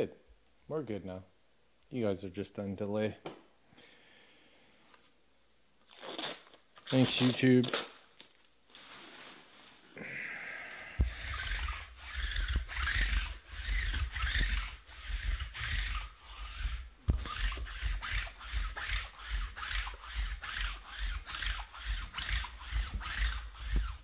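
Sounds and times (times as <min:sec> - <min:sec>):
rubbing scraping strokes: 0:08.7 - 0:09.9, 0:11.0 - 0:24.0.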